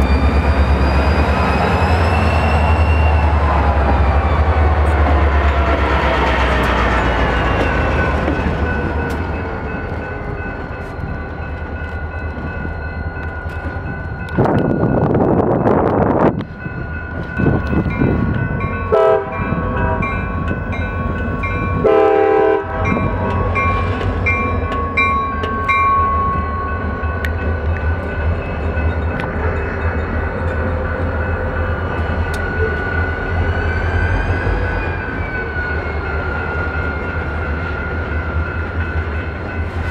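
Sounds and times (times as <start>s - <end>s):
crossing bell ringing: 0.0s - 39.9s
diesel locomotives rumbling: 0.0s - 39.9s
locomotive horn blasts: 18.9s - 20.2s, 21.8s - 23.3s.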